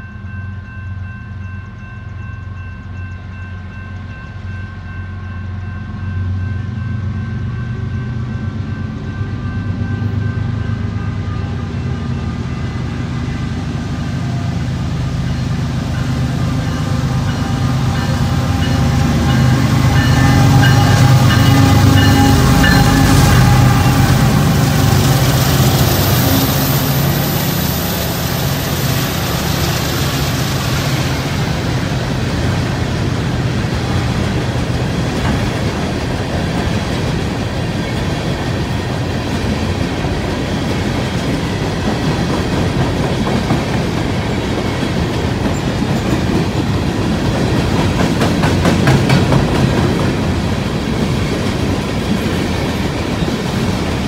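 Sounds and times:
diesel locomotive engine: 0.0s - 54.0s
train wheels clacking on rails: 14.5s - 54.0s.

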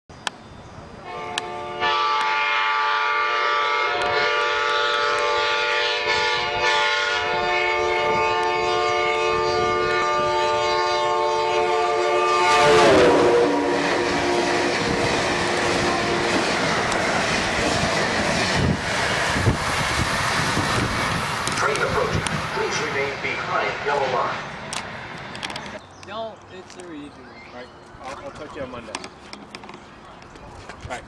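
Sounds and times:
train rushing past: 0.8s - 25.8s
train air horn chord: 1.0s - 16.4s.

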